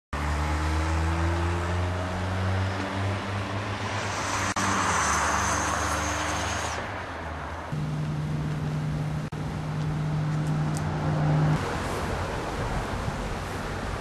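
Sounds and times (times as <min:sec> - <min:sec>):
motor engine humming: 0:07.7 - 0:11.6.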